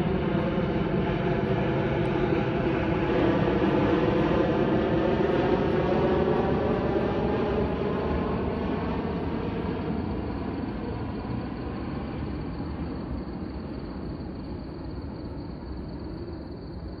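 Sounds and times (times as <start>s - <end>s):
jet airliner engines overhead: 0.0s - 17.0s.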